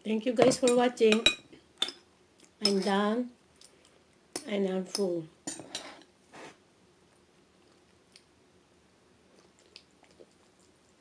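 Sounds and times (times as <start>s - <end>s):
person chewing noodles: 9.3s - 10.9s.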